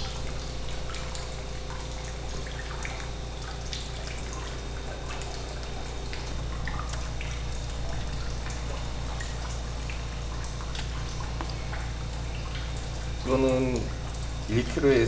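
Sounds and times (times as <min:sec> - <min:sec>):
steady low hum: 0:00.0 - 0:15.0
water dripping and trickling: 0:00.0 - 0:15.0
wet taps and clicks: 0:05.0 - 0:08.6, 0:09.2 - 0:14.3.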